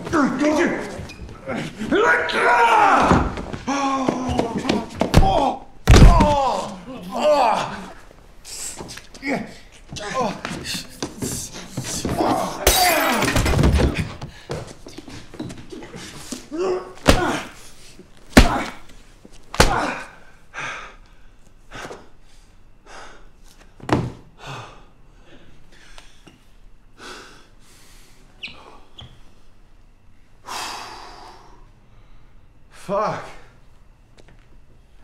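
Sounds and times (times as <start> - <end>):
heavy thuds on floor: 3.0 - 6.5
man grunting: 3.7 - 8.0, 15.8 - 17.6, 18.4 - 18.8, 19.6 - 20.2.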